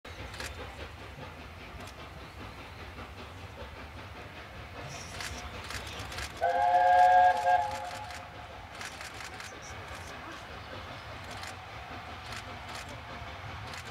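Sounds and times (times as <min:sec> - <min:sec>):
low rumble of locomotive: 0:00.1 - 0:13.9
steam locomotive chime whistle: 0:06.4 - 0:08.3.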